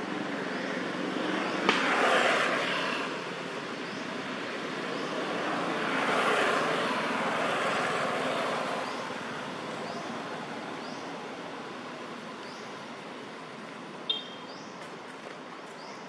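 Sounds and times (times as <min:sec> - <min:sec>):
vehicle passing by: 0:00.0 - 0:10.8.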